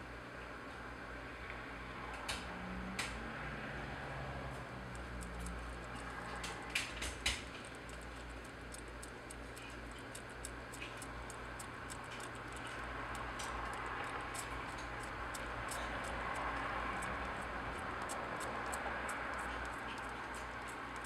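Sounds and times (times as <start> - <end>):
kittens suckling clicks and smacks: 4.2 - 21.0.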